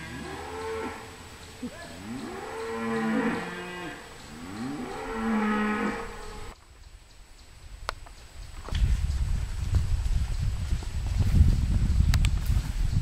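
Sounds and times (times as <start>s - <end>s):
cattle mooing: 0.0s - 6.5s.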